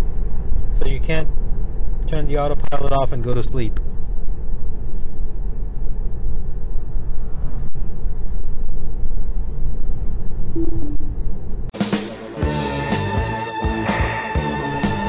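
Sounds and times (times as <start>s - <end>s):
tyre and road noise rumble: 0.0s - 11.8s.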